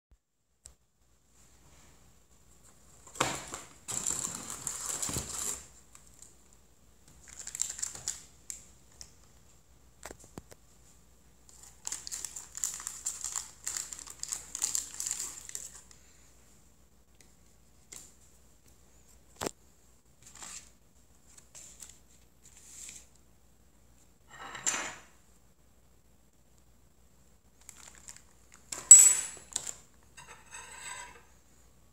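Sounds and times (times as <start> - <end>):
plastic wrapper crinkling: 3.5 - 6.4, 7.2 - 9.1, 11.5 - 16.0, 27.6 - 28.7.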